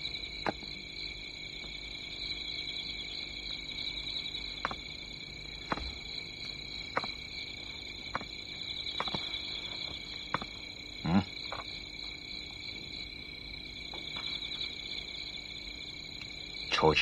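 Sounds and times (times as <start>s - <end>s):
night insects chirring: 0.0s - 17.0s
footsteps on stone steps: 0.4s - 0.8s, 4.6s - 10.8s, 11.4s - 12.3s, 13.9s - 14.8s.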